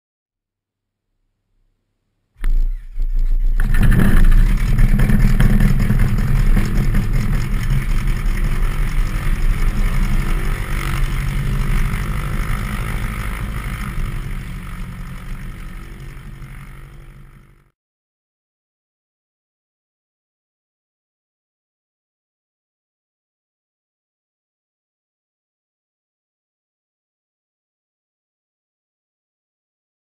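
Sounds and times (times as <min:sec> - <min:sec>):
aircraft engine starting and running: 0:02.4 - 0:17.7.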